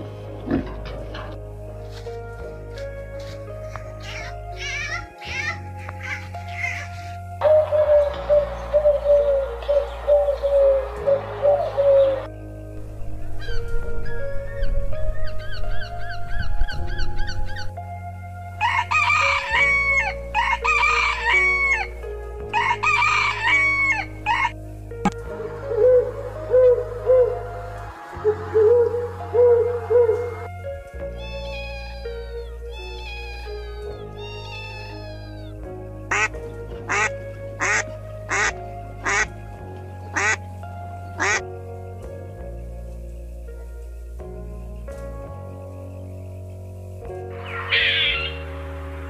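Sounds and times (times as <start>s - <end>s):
background music: 0.0s - 49.0s
rooster crowing: 18.6s - 21.9s, 22.5s - 24.6s
kitten mewing: 31.2s - 35.5s
water birds calling: 40.1s - 40.4s, 41.1s - 41.5s, 47.3s - 48.6s.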